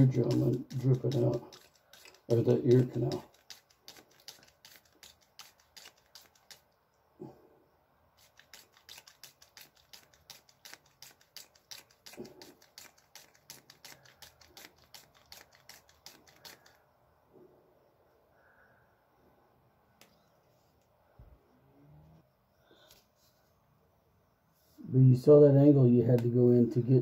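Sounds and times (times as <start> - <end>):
water spurts from squeeze bottle: 0.0 - 6.7, 8.2 - 16.8.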